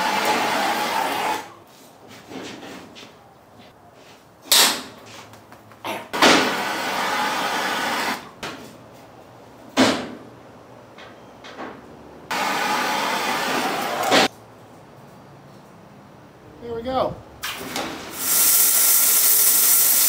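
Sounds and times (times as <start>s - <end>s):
gas torch firing: 17.4s - 20.0s.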